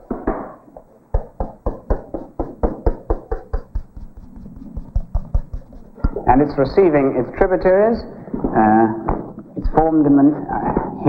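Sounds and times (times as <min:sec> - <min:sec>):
chalk scraping on blackboard: 0:02.1 - 0:06.2.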